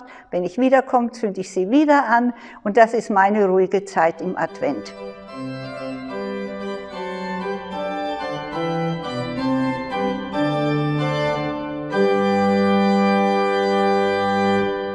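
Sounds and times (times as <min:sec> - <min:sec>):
organ chords: 0:04.5 - 0:14.9.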